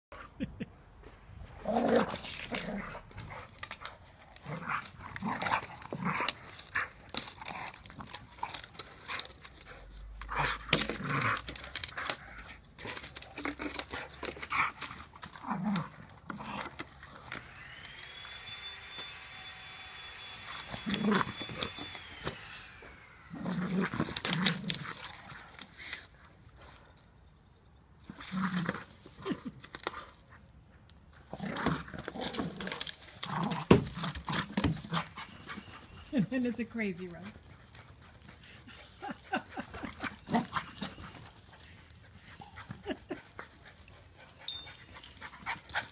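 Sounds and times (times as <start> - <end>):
branch scraping on ground: 1.5 - 26.8, 31.1 - 42.9
high whine: 16.6 - 24.8.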